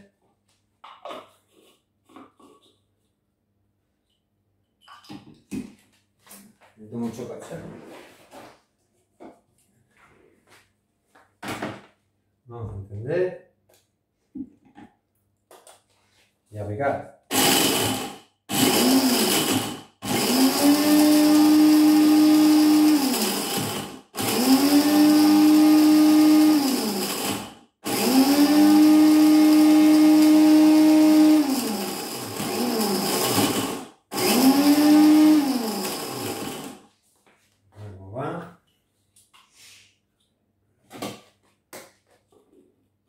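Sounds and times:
electric blender motor: 17.3 - 36.9.

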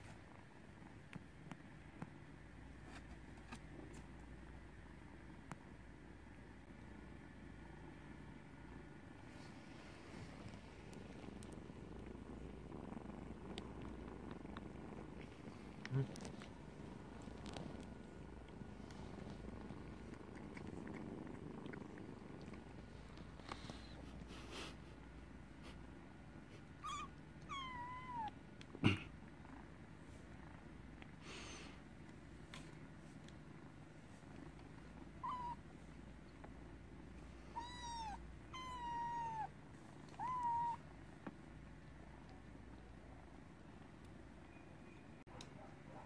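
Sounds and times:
cat purring: 0.0 - 45.0
cat meowing: 26.8 - 28.3, 35.2 - 35.6, 37.5 - 39.5, 40.2 - 40.8.

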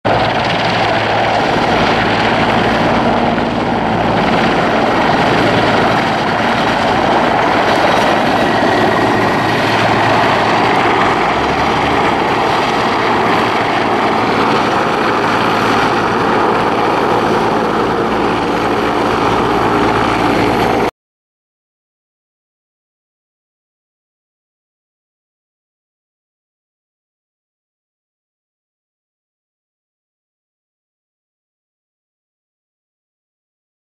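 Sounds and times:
helicopter engines and rotor: 0.1 - 20.9.

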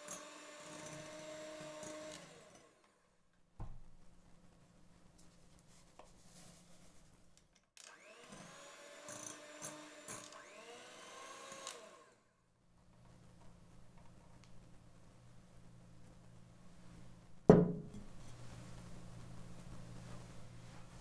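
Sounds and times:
electric hand mixer running: 0.0 - 2.8, 7.9 - 12.2.

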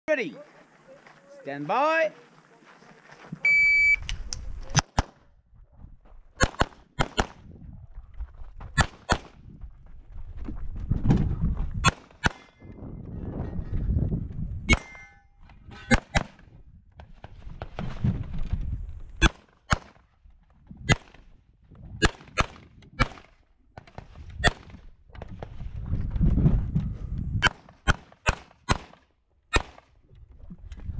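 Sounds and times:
wind rumble on microphone: 4.0 - 6.4, 7.2 - 12.0, 12.6 - 19.2, 20.5 - 27.5, 30.0 - 30.9
pistol shots: 6.4 - 7.4, 27.4 - 29.8.

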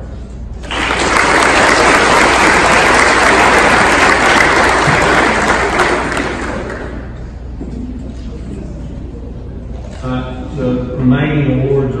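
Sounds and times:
audience applauding: 0.6 - 7.2.

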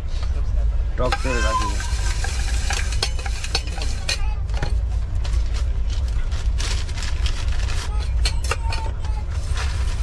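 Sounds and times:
train rumbling: 0.0 - 10.0
spoon scraping in steel tumbler: 1.0 - 4.3.

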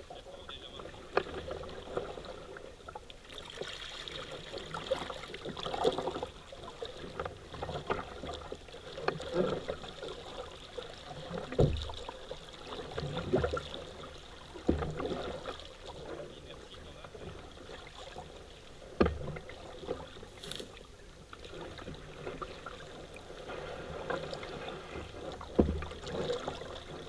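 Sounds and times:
paddle splashing water: 0.0 - 27.0
knocks on boat: 11.5 - 11.9, 19.0 - 19.4, 25.5 - 26.3.

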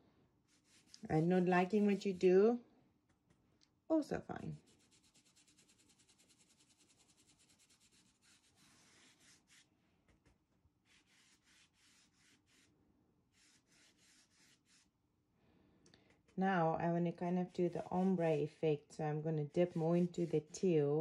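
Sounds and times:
paintbrush strokes on fabric: 0.4 - 2.6, 4.4 - 15.0, 17.2 - 18.4, 19.5 - 21.0.

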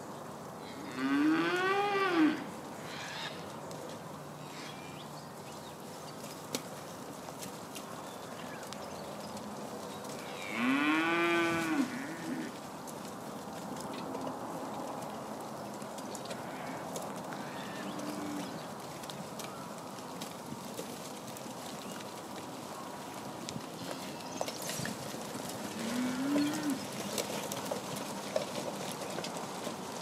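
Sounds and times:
steers mooing: 16.2 - 18.8, 25.2 - 28.8.

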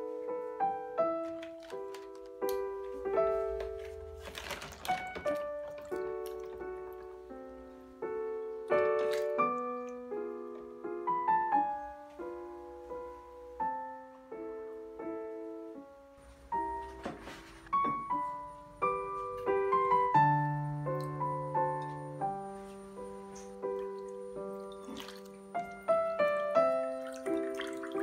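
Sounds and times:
gentle piano melody: 0.0 - 28.0.

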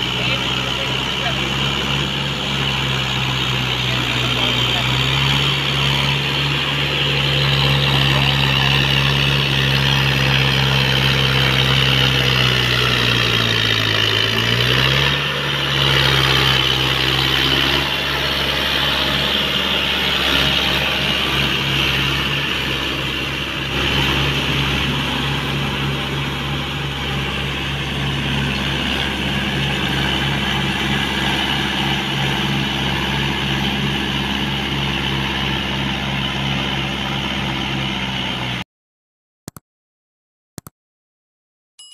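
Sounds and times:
diesel tractor engine labouring: 0.0 - 38.6.

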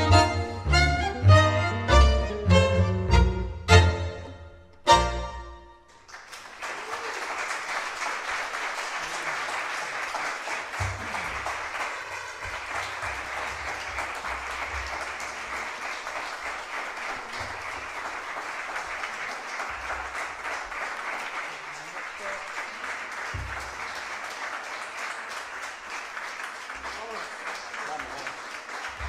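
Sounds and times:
audience applause: 6.0 - 29.0.

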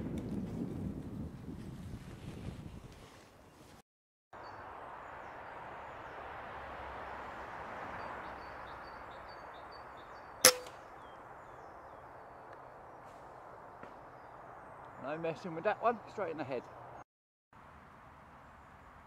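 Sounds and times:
steady outdoor hiss: 4.4 - 17.0
air rifle shot: 10.4 - 10.8.

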